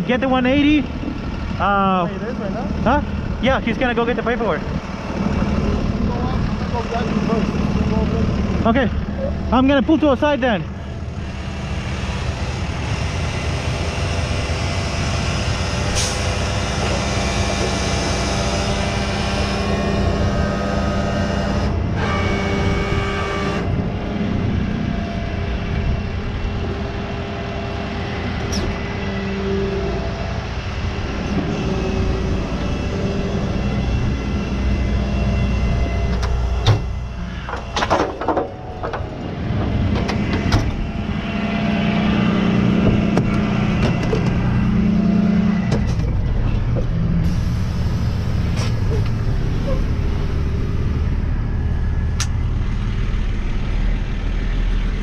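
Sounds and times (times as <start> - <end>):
diesel engine running: 0.0 - 55.0
hydraulic whine: 0.4 - 55.0
sharp clicks and knocks: 37.5 - 40.8, 42.8 - 44.4.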